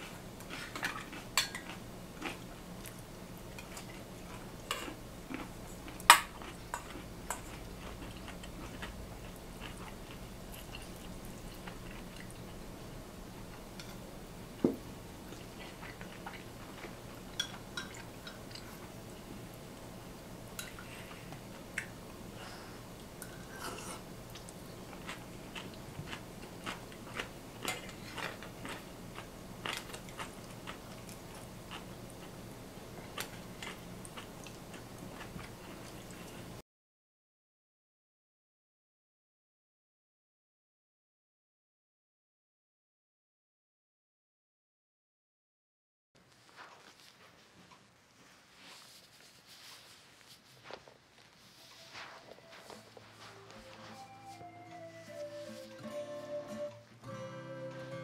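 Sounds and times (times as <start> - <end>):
chewing: 0.0 - 12.7, 15.2 - 19.5, 20.5 - 36.6, 46.3 - 54.1.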